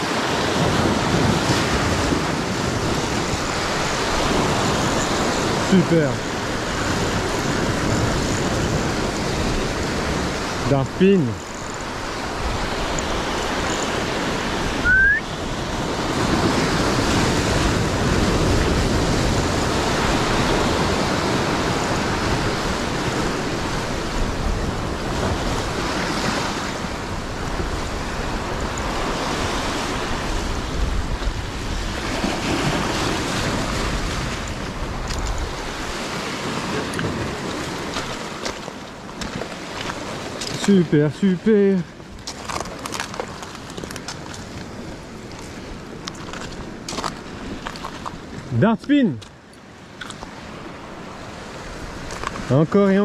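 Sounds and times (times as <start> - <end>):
surf washing over rocks: 0.0 - 53.0.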